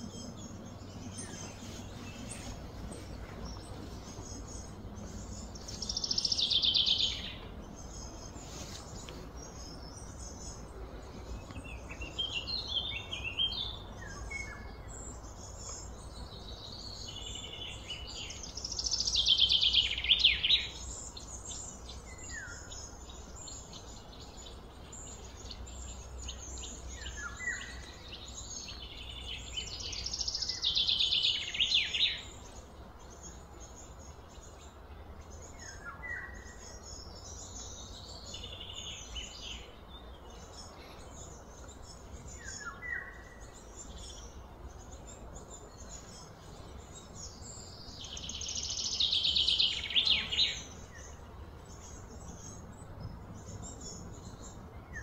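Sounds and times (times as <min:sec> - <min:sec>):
low background rumble: 0:00.0 - 0:19.0
soft bird chirps: 0:00.0 - 0:55.0.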